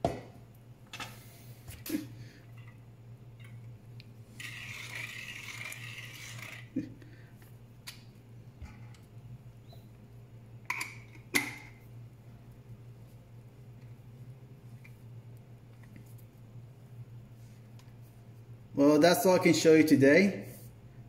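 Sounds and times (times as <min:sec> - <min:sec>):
metal scraping rub: 0:04.3 - 0:06.8.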